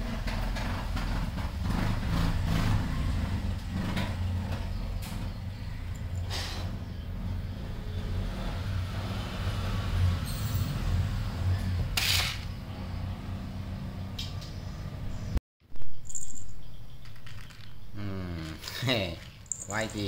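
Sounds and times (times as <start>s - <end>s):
short hisses: 6.2s - 6.7s.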